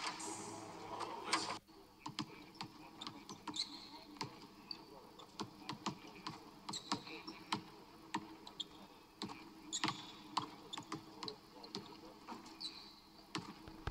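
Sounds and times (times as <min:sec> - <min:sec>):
sneaker squeaks: 0:03.0 - 0:04.0, 0:06.7 - 0:07.4, 0:09.7 - 0:11.0, 0:12.5 - 0:13.0.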